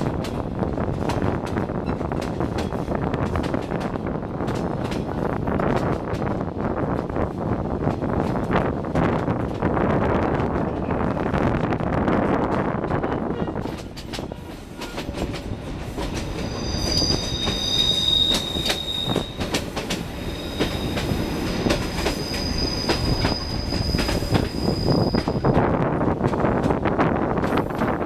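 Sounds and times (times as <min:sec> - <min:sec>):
train wheels clicking over rail joints: 0:00.0 - 0:07.2, 0:12.3 - 0:28.0
high-pitched wheel squeal: 0:16.4 - 0:19.4, 0:22.1 - 0:25.4.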